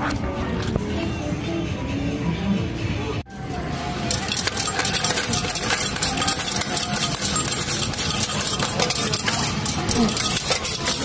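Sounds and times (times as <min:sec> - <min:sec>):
arcade machines humming: 0:00.2 - 0:11.0
coins clattering into paper cup: 0:04.1 - 0:11.0.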